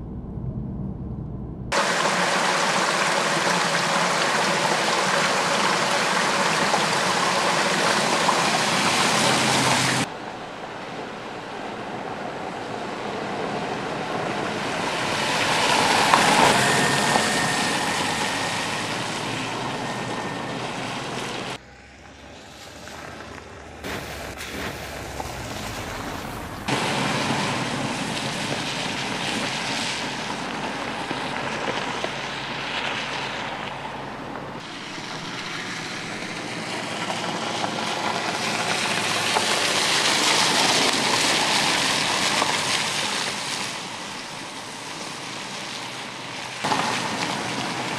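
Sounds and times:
car engine: 0:00.0 - 0:43.6
tyres crunching on gravel: 0:22.2 - 0:33.5.

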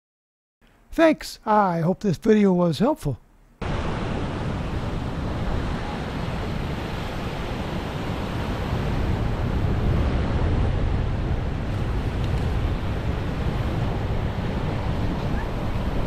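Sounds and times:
ocean waves breaking: 0:03.6 - 0:16.0
wind buffeting microphone: 0:03.6 - 0:16.0.

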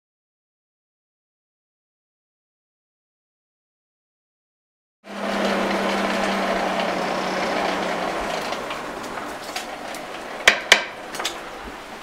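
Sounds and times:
air blower rushing: 0:05.1 - 0:12.0
low hum: 0:05.1 - 0:12.0.

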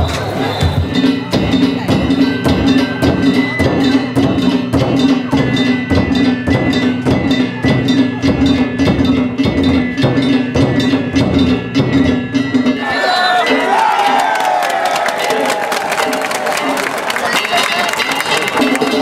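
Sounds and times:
taiko drum: 0:00.0 - 0:14.2.

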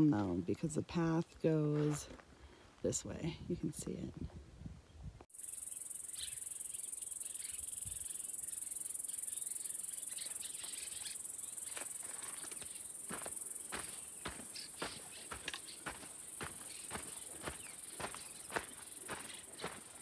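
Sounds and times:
footsteps on gravel trail: 0:01.0 - 0:02.4, 0:11.6 - 0:20.0
insects buzzing: 0:05.3 - 0:20.0.

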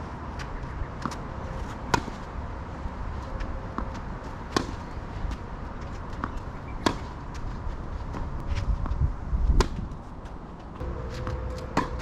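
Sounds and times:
tennis ball bouncing on court: 0:01.9 - 0:02.3, 0:03.7 - 0:07.5, 0:08.1 - 0:12.0
tennis ball struck by rackets: 0:01.9 - 0:02.3, 0:03.7 - 0:04.9, 0:06.1 - 0:07.4, 0:09.6 - 0:09.9, 0:11.1 - 0:12.0.

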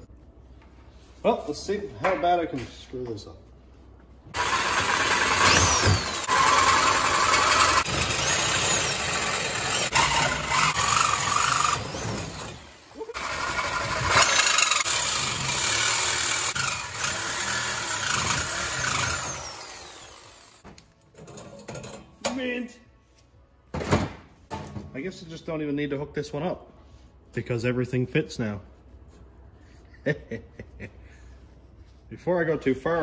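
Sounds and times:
angle grinder cutting steel: 0:04.4 - 0:20.6.

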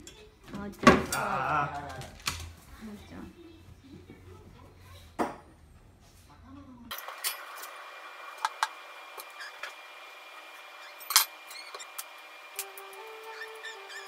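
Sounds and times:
soft musical note: 0:12.6 - 0:14.0.

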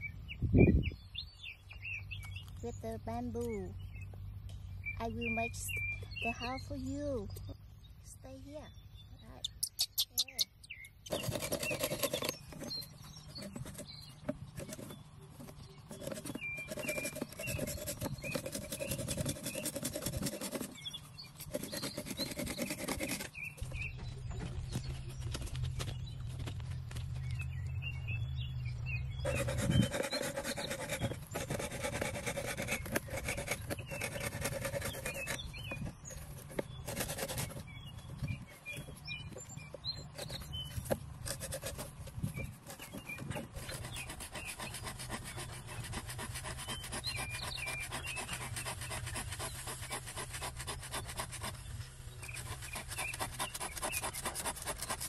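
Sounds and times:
hand saw cutting bamboo: 0:11.1 - 0:23.5, 0:29.2 - 0:37.7, 0:40.2 - 0:42.0, 0:42.6 - 0:51.6, 0:52.2 - 0:55.0.

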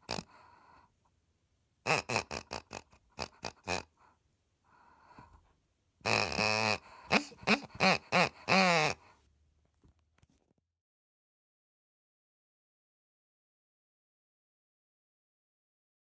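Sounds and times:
squeaky dog toy oinking: 0:00.0 - 0:00.3, 0:01.8 - 0:03.9, 0:06.0 - 0:09.0.

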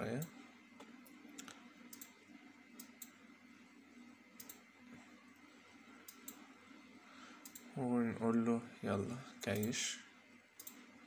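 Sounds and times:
faint computer mouse clicks: 0:04.4 - 0:04.6, 0:07.4 - 0:07.7.

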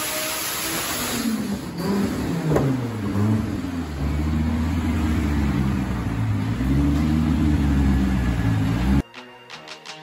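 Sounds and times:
car engine decelerating: 0:01.3 - 0:09.0.

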